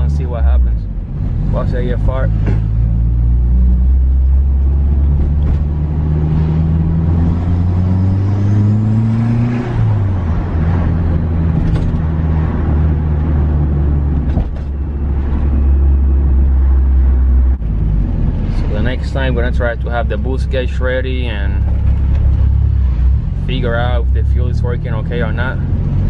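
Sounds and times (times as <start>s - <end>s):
car engine revving from inside cabin: 2.5s - 14.1s.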